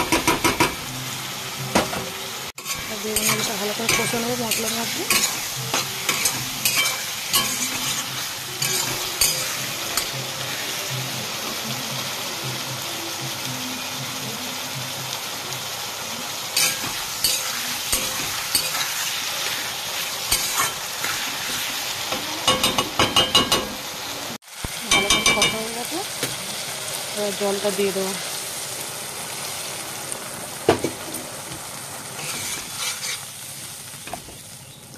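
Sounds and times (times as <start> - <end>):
vegetables sizzling in hot oil: 0.0 - 34.9
metal spatula scraping pan: 2.6 - 10.2, 20.3 - 21.7, 32.2 - 33.3.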